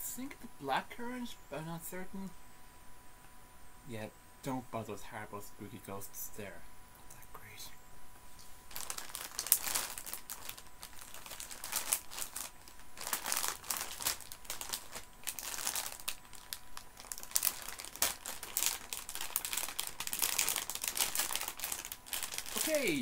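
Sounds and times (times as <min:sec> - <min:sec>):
sweet packet crinkling: 0:08.7 - 0:23.0.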